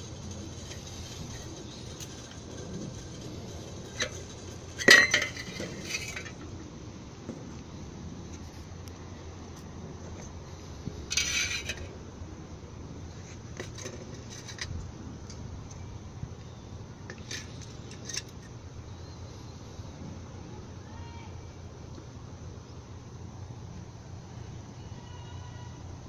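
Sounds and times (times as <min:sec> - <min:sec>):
metal scraping and clinking: 0:00.0 - 0:06.6, 0:11.1 - 0:12.0, 0:13.1 - 0:15.4, 0:17.1 - 0:18.6.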